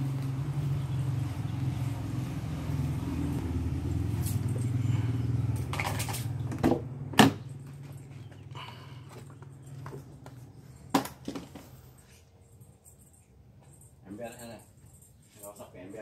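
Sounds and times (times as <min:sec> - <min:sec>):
low hum: 0:00.0 - 0:10.9.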